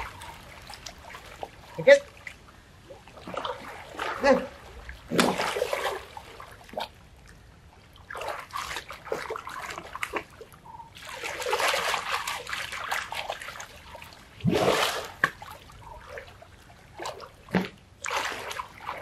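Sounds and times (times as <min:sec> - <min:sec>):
river water splashing: 0:00.0 - 0:19.0.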